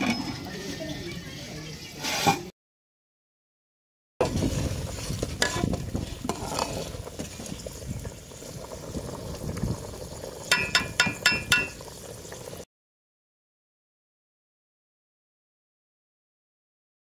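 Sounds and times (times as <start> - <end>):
liquid bubbling in a pot: 4.2 - 12.7
spatula stirring in a pot: 4.4 - 7.8
metal spatula clinking on pot: 10.5 - 11.8.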